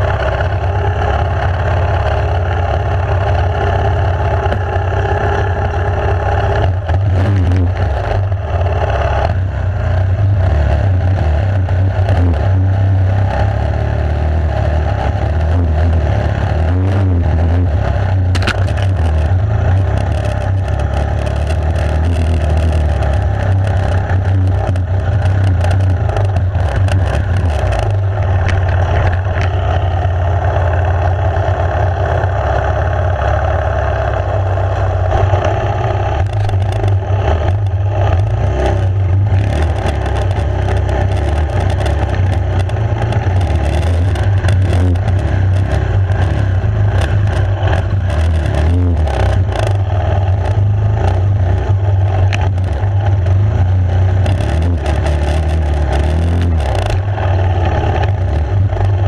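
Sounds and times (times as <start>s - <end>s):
dirt bike engine running: 0.0s - 59.0s
knocks and clatter: 18.1s - 30.2s, 35.1s - 59.0s.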